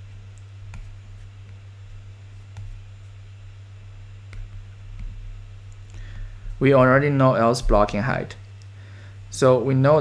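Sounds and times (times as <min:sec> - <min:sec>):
low electrical hum: 0:00.0 - 0:10.0
stylus tapping on screen: 0:00.3 - 0:02.9, 0:04.2 - 0:06.1.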